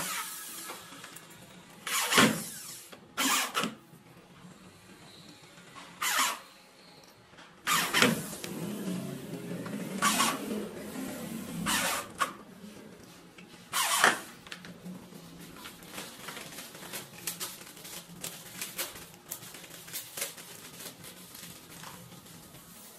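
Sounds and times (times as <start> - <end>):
electric drill driving screws: 0.0 - 1.2, 1.8 - 3.7.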